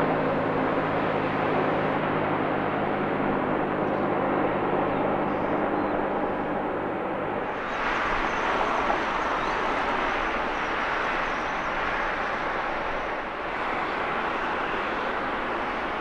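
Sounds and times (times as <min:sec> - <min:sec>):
jet engine rushing: 0:07.2 - 0:16.0.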